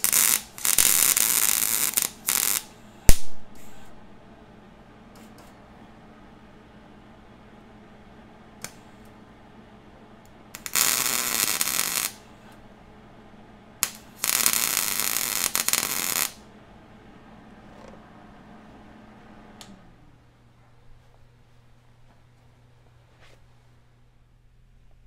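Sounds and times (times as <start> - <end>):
welder arc crackling: 0.0 - 4.1, 10.2 - 12.6, 13.8 - 16.5
welder sharp click: 13.8 - 16.4.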